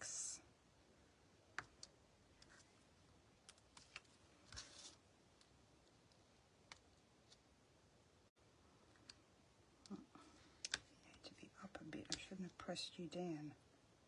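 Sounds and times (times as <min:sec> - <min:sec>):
paper rustling: 0:03.5 - 0:05.0.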